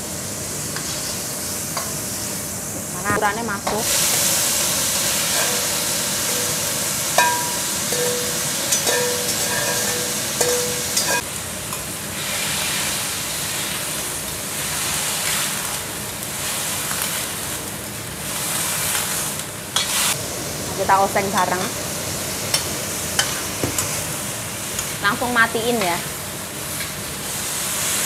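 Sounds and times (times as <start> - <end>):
vegetables sizzling in a wok: 0.0 - 28.0
metal spatula scraping a wok: 0.8 - 2.2, 5.2 - 11.2, 18.4 - 20.2, 23.2 - 24.0.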